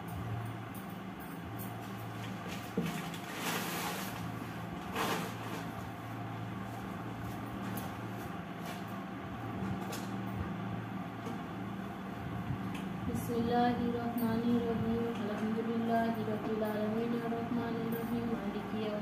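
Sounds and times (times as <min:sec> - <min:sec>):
steady low hum: 0:00.0 - 0:19.0
plastic bag rustling: 0:02.3 - 0:05.9.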